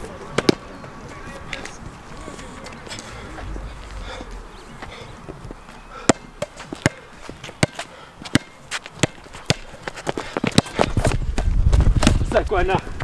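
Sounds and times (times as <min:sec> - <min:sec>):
players' footsteps: 0:00.0 - 0:13.0
basketball bouncing on hard court: 0:07.6 - 0:09.6.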